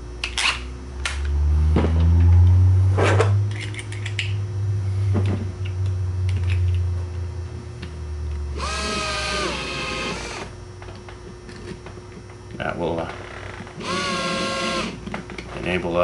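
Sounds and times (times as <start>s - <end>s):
low hum: 0.0s - 14.8s
cordless drill whirring: 8.5s - 10.6s, 13.8s - 15.0s.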